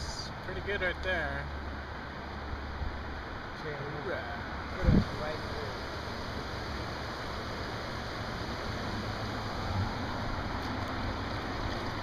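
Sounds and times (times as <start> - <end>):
river water rushing: 4.4 - 12.0.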